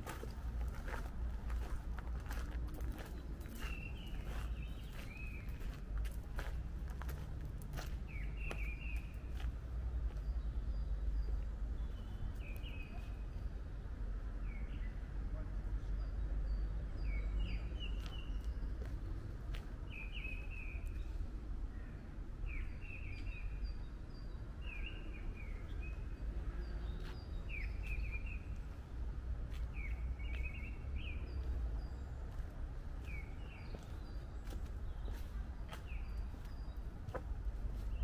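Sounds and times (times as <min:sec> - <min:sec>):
steady low rumble: 0:00.0 - 0:12.6, 0:13.4 - 0:38.0.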